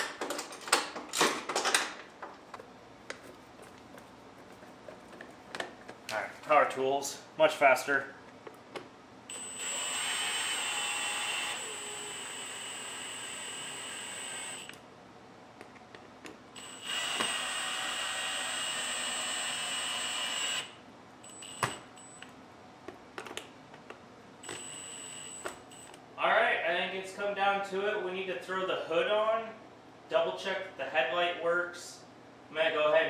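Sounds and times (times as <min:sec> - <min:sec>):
cordless drill driving screws: 0:09.3 - 0:14.7, 0:16.6 - 0:20.7.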